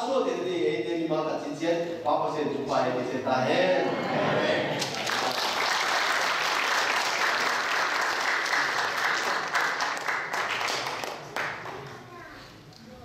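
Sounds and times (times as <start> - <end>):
congregation applauding: 4.7 - 11.9.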